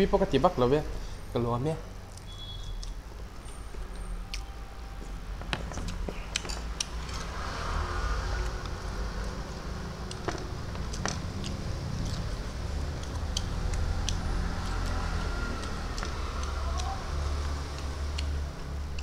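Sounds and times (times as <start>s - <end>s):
chewing crunchy food: 10.0s - 19.0s.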